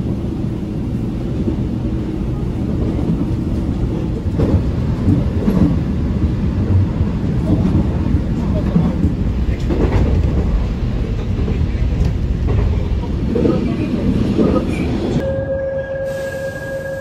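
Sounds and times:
wheels rumbling on rail: 0:00.0 - 0:17.0.

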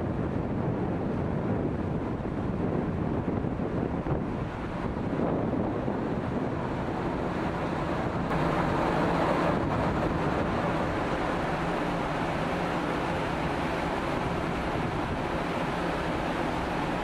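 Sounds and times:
water rushing along hull: 0:00.0 - 0:17.0
ferry engines humming: 0:04.4 - 0:17.0.

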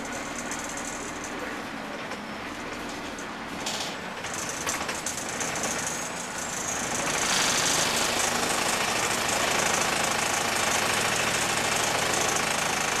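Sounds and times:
bus diesel engine clatter: 0:00.0 - 0:10.0.

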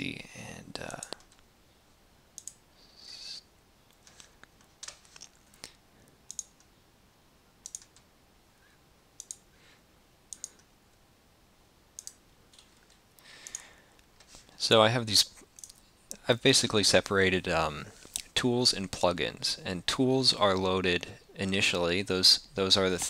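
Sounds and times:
computer mouse clicking: 0:02.4 - 0:02.6, 0:03.9 - 0:06.7, 0:07.6 - 0:08.1, 0:09.2 - 0:09.5, 0:10.3 - 0:10.7, 0:12.0 - 0:13.7, 0:15.5 - 0:15.8.

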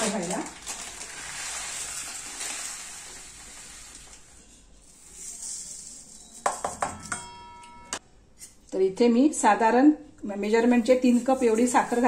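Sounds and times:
sugar pouring hiss: 0:00.7 - 0:06.4.

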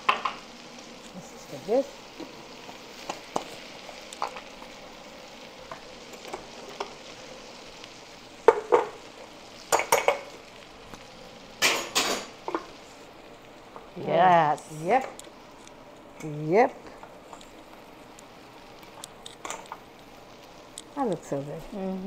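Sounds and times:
deep-frying oil sizzling: 0:00.0 - 0:22.0.

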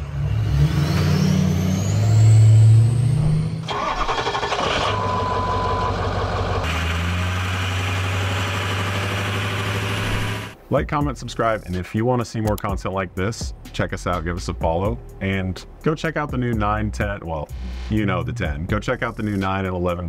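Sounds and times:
diesel pickup revving: 0:00.0 - 0:10.6.

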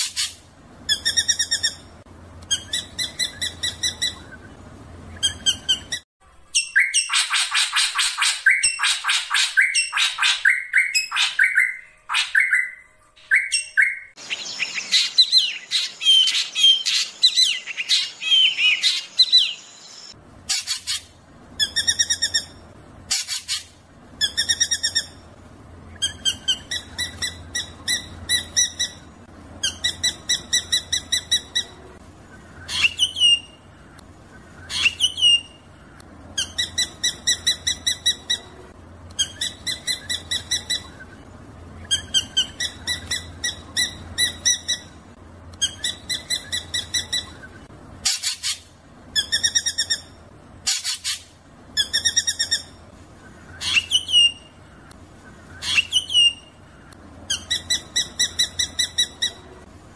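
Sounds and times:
faint low hum: 0:00.0 - 0:06.6, 0:14.2 - 0:59.9
bird song sharp repeated notes: 0:00.0 - 0:59.6.

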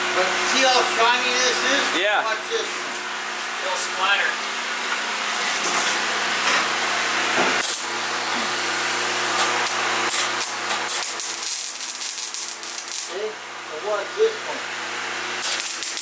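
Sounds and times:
welder arc crackling and hissing: 0:07.6 - 0:14.6, 0:15.2 - 0:16.0.

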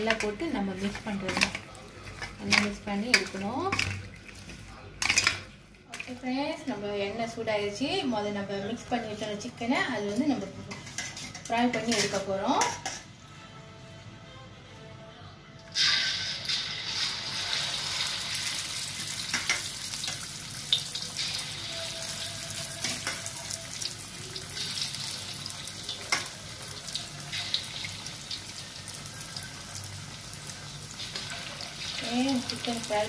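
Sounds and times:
chicken deep-frying in hot oil: 0:15.7 - 0:33.0.

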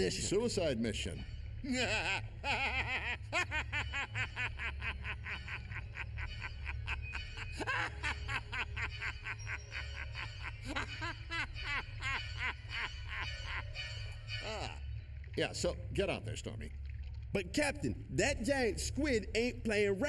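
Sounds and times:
low steady hum: 0:00.0 - 0:20.0
man laughing: 0:01.6 - 0:14.8.

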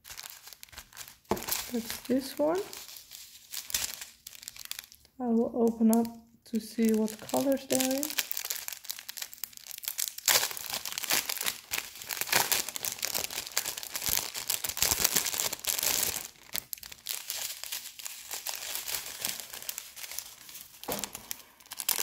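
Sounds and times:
plastic bag crinkling: 0:00.0 - 0:22.0.

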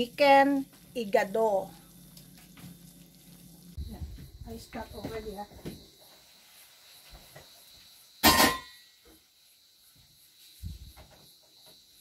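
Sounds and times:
cookware clattering: 0:08.2 - 0:08.8.

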